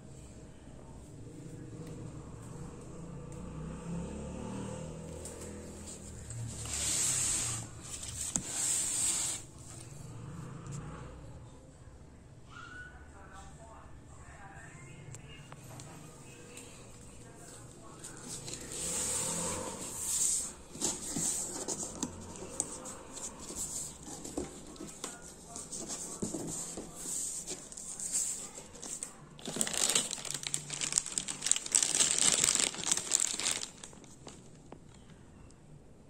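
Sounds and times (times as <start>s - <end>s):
packaging rustling: 18.1s - 34.8s
plastic bag crinkling: 27.4s - 34.8s.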